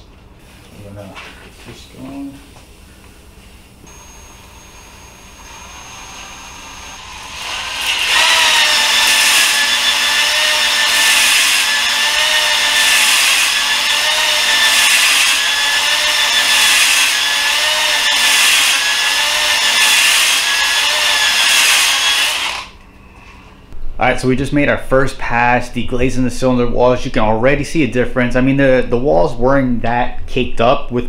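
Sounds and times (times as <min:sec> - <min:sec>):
cordless drill whining: 0:03.9 - 0:22.8.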